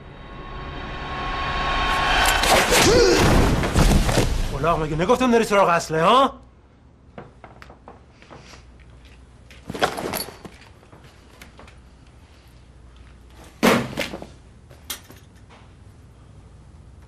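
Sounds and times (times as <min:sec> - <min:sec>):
loud thuds: 0:02.3 - 0:04.9.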